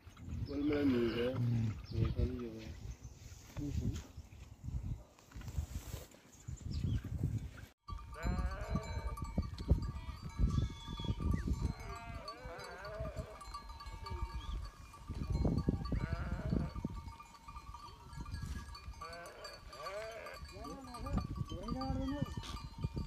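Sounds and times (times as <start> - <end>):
sheep bleating: 8.1 - 9.0, 11.7 - 13.4, 15.8 - 16.8, 19.0 - 20.5.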